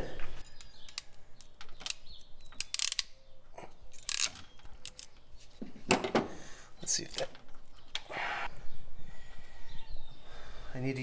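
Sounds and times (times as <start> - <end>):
ratcheting crimping tool clicking: 2.6 - 3.2.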